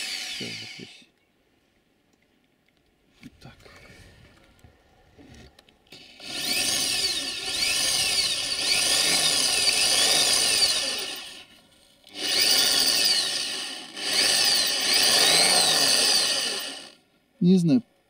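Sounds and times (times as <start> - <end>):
electric drill boring metal: 0.0 - 1.0, 5.9 - 11.5, 12.1 - 17.0.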